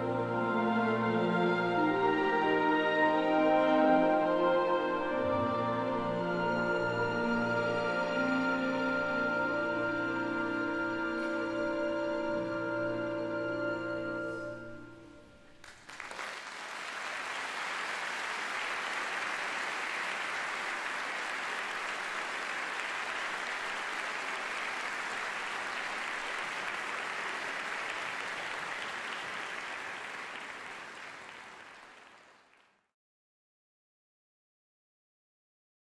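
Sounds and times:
choir and orchestra chord: 0.0s - 15.4s
audience applause: 15.6s - 32.8s.

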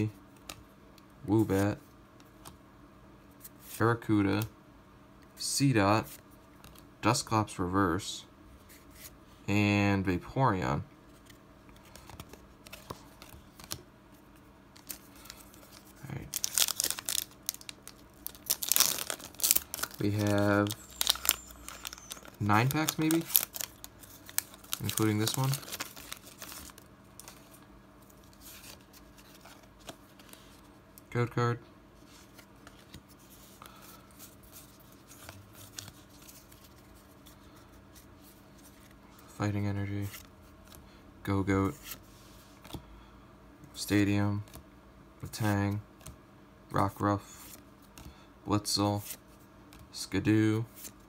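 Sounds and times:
cards clicking and rustling: 11.1s - 13.8s, 14.8s - 30.7s
foil wrapper crinkling and tearing: 14.8s - 27.4s.

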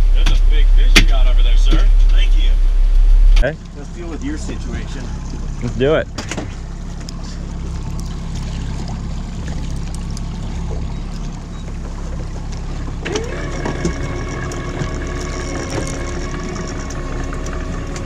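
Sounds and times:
outboard motor running: 0.0s - 18.0s
water against boat: 0.0s - 18.0s
motor whine: 3.8s - 18.0s.

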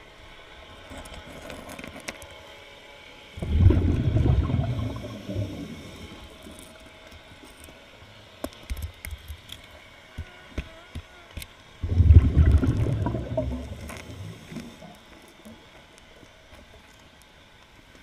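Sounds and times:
scuba regulator bubbles: 3.4s - 6.6s, 11.8s - 15.0s.

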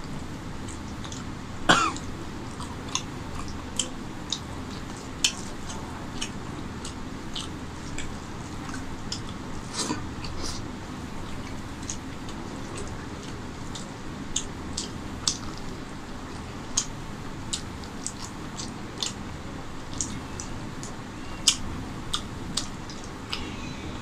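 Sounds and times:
wet chewing and smacking: 0.0s - 23.5s
throat-clearing cough: 1.7s - 2.1s.

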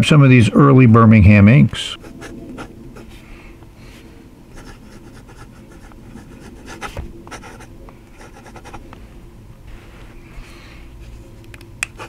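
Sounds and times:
pen nib scratching paper: 4.5s - 8.8s.

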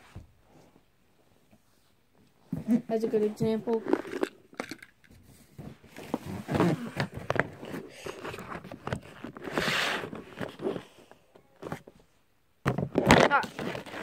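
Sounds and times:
handling knocks and scrapes: 12.7s - 14.0s.

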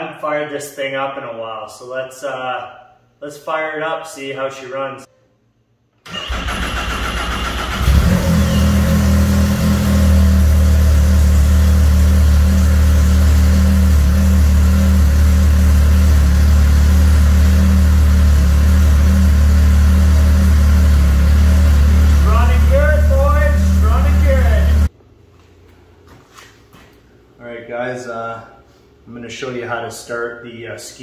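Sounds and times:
electric starter cranking whine: 6.1s - 12.9s
snowmobile engine idling: 7.8s - 24.9s.

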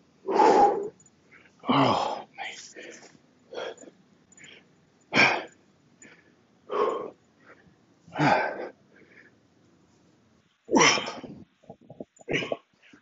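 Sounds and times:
man exhaling forcefully: 0.3s - 0.9s.

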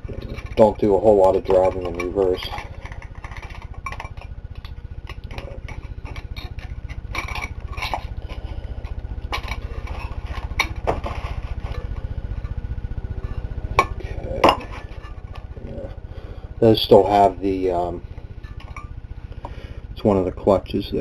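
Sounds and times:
low hum: 0.0s - 21.0s
metal plates clinking: 5.1s - 8.1s.

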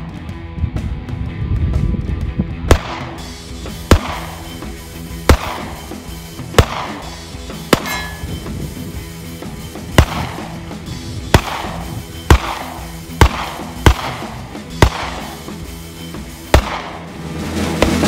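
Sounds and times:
handgun shots echoing: 2.7s - 3.2s, 3.8s - 4.6s, 5.2s - 8.4s, 10.0s - 10.6s, 11.3s - 15.4s, 16.5s - 17.1s.

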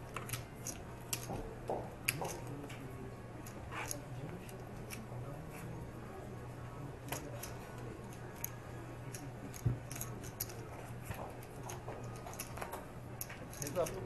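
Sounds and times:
poker chips clicking: 0.1s - 1.3s, 7.2s - 10.7s, 11.6s - 14.0s.

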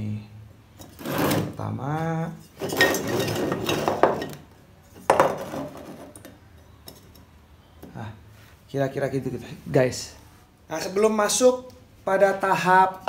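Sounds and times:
steel tube scraping and clinking: 0.7s - 1.7s, 2.3s - 7.2s.

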